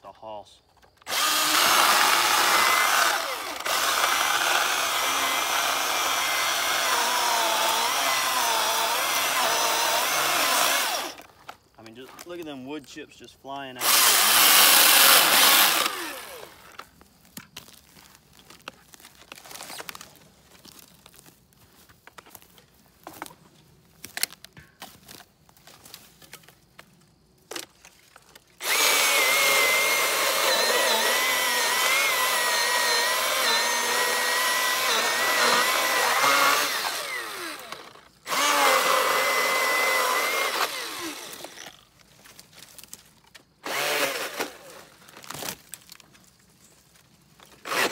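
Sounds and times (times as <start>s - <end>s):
cordless chainsaw whining: 1.0s - 11.4s, 13.8s - 16.9s, 28.6s - 42.0s, 43.6s - 45.5s, 47.4s - 47.9s.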